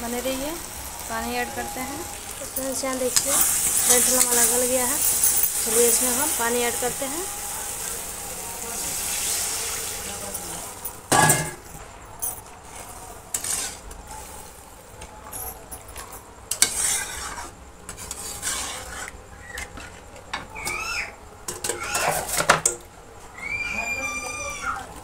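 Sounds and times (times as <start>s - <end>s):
water hissing in hot pan: 0.0s - 11.1s
spatula scraping metal pan: 1.4s - 8.0s, 12.7s - 13.9s, 16.5s - 20.0s.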